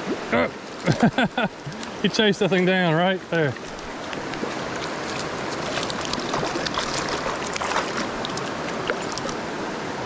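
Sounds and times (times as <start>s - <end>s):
creek water rushing: 0.0s - 10.0s
fish splashing at surface: 3.4s - 9.4s.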